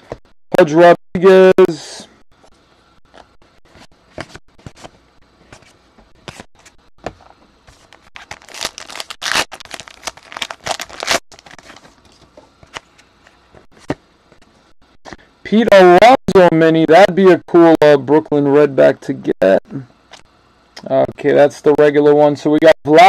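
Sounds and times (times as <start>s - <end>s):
trading cards rustling and clicking: 3.0s - 14.0s
wrapper crinkling and tearing: 7.8s - 12.2s.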